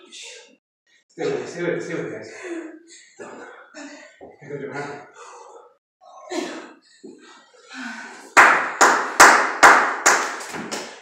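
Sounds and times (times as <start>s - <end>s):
hands clapping: 8.2s - 11.0s.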